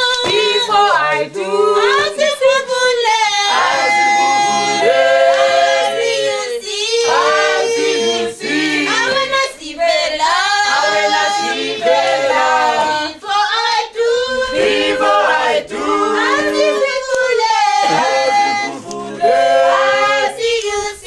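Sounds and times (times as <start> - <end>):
choir singing a cappella: 0.0 - 21.0.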